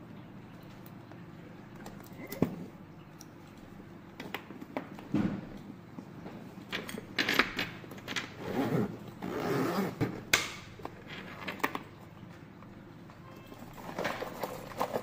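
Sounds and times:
zipper scraping open: 0:08.4 - 0:10.1.

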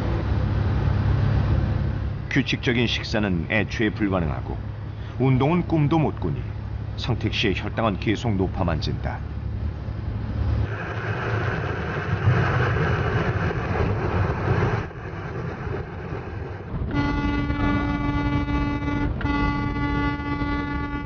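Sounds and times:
vehicle road noise: 0:00.0 - 0:21.0
locomotive horn blasts: 0:16.8 - 0:21.0.

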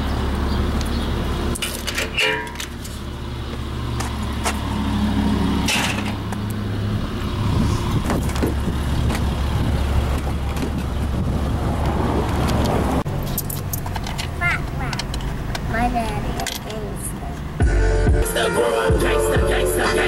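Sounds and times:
metal gate latch clicking: 0:01.6 - 0:02.7.

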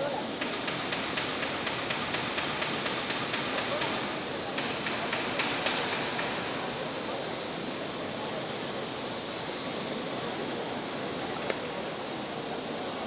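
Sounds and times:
ambient hiss: 0:00.0 - 0:13.0.

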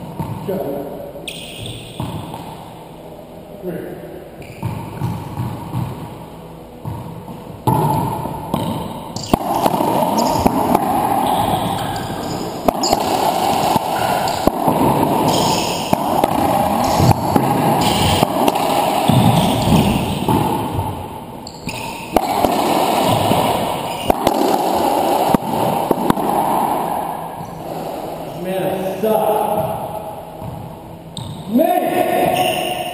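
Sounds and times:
racquetball cracking off racquets: 0:06.8 - 0:28.3
steady rushing noise: 0:07.6 - 0:31.1.

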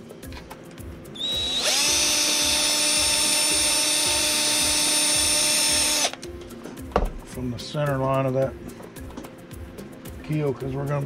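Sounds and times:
small electric drill spinning: 0:01.2 - 0:06.2.

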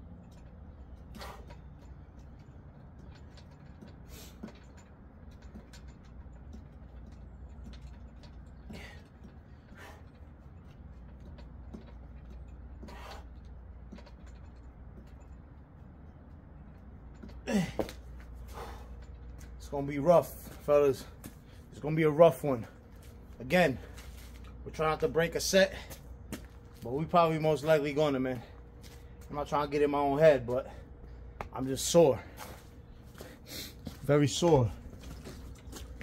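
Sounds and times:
metal frame creaking and clicking: 0:00.0 - 0:36.0
sharp breaths: 0:08.6 - 0:10.2, 0:12.8 - 0:13.5, 0:17.5 - 0:19.3, 0:32.2 - 0:33.9
man grunting: 0:17.4 - 0:17.9.

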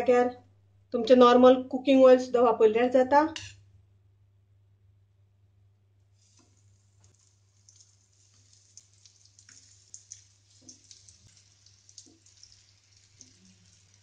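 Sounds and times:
oil sizzling on griddle: 0:06.2 - 0:14.0.

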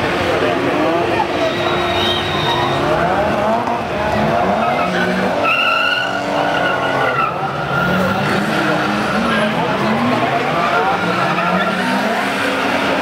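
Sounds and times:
car engines revving: 0:00.0 - 0:13.0
tyre squeal: 0:01.4 - 0:03.0, 0:04.6 - 0:08.1.

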